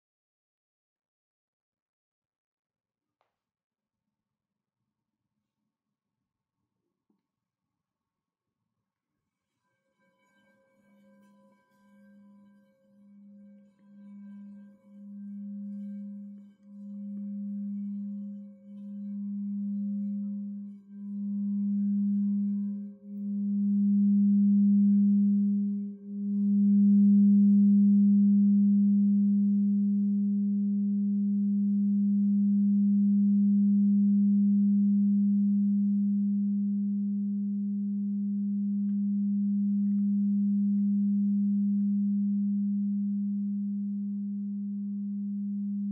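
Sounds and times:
singing bowl humming: 0:09.7 - 0:45.9.

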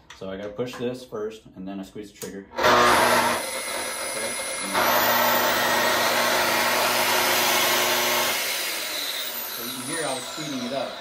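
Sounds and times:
circular saw motor whining: 0:02.6 - 0:11.0.

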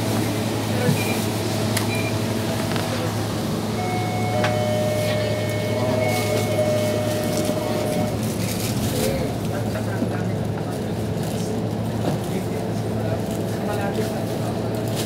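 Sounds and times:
vehicle drone and road noise: 0:00.0 - 0:15.0.

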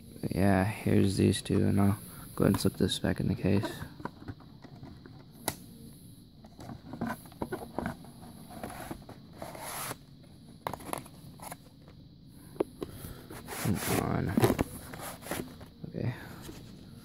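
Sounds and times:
scraping rustles: 0:13.3 - 0:15.7.

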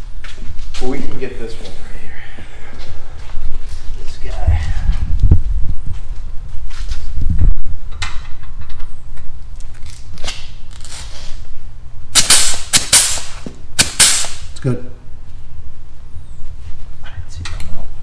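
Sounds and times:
steady low hum: 0:00.0 - 0:18.0
grease gun hissing bursts: 0:12.2 - 0:14.4.

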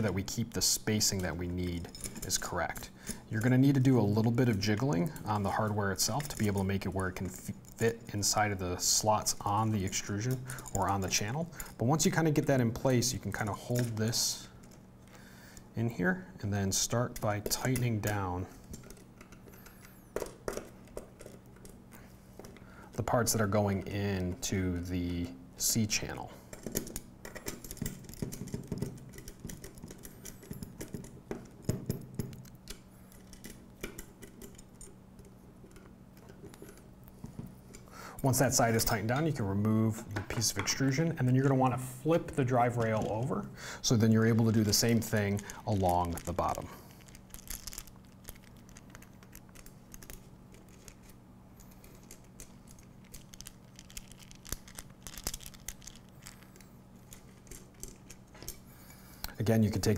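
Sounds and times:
bracket hardware shifting: 0:26.1 - 0:59.4.

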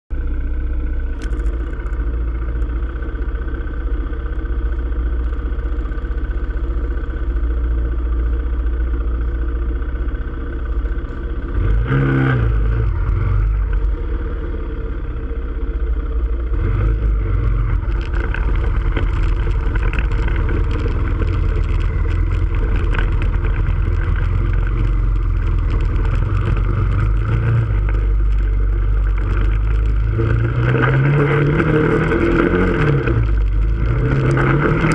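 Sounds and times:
quad bike engine running: 0:00.1 - 0:34.9.

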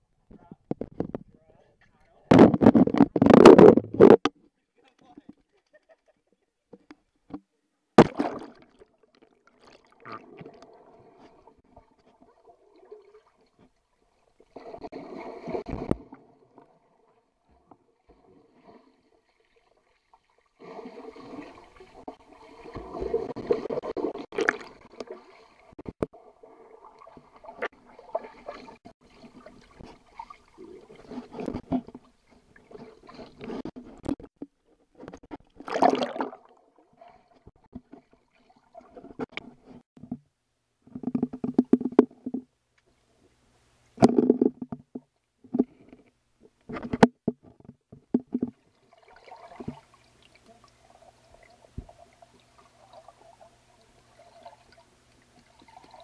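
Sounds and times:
muffled water splashing and gurgling: 0:08.0 - 0:40.2.

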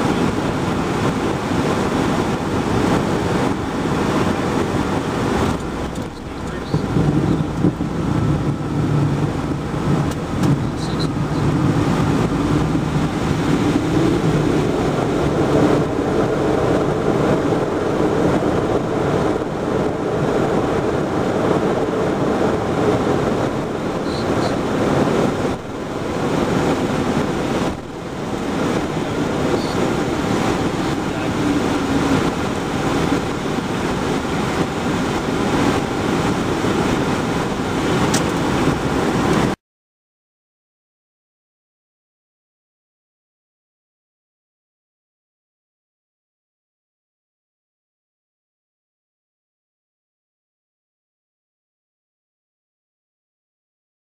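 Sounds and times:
jet engine and airflow rush: 0:00.0 - 0:39.6.

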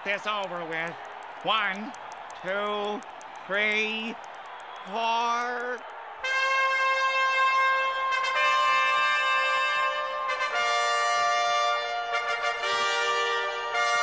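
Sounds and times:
brass band playing held chords: 0:06.2 - 0:14.0.

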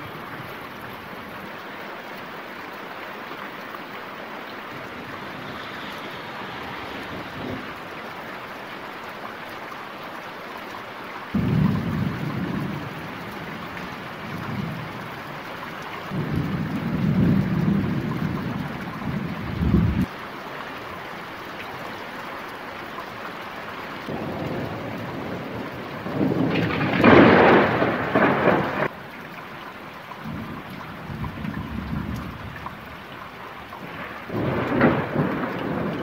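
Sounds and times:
rain hiss: 0:00.0 - 0:36.0
thunder rumbling: 0:11.4 - 0:15.5, 0:16.1 - 0:20.1, 0:24.1 - 0:28.9, 0:33.8 - 0:36.0
sharp peal of thunder: 0:24.1 - 0:28.9, 0:33.8 - 0:36.0.

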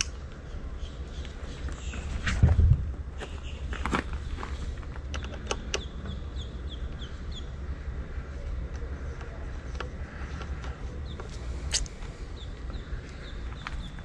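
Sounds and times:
bird chirping: 0:00.4 - 0:02.2, 0:03.2 - 0:03.8, 0:05.2 - 0:07.8, 0:09.0 - 0:14.0.

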